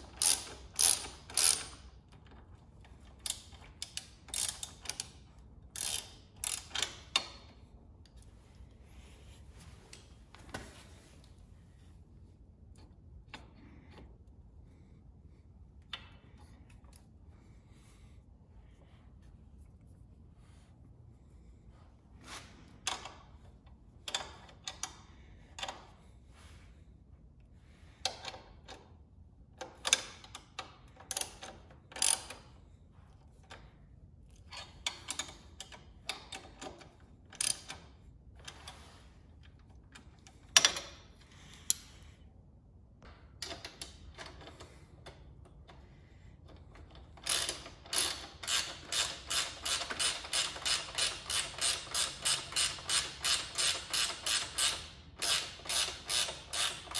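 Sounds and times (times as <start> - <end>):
ratchet clicks: 0.0 - 7.5, 29.6 - 32.5, 34.4 - 37.9, 46.8 - 56.9
wrench clinking on bolts: 3.1 - 5.2, 5.8 - 7.5, 47.2 - 56.9.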